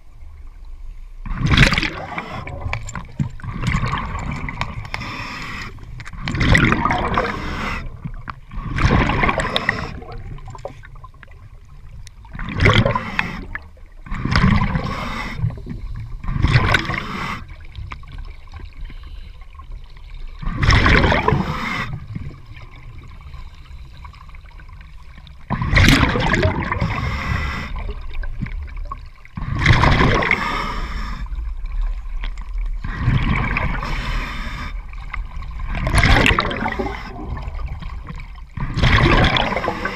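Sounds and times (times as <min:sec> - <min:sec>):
underwater exhaled bubbles gurgling: 0:00.0 - 0:39.9.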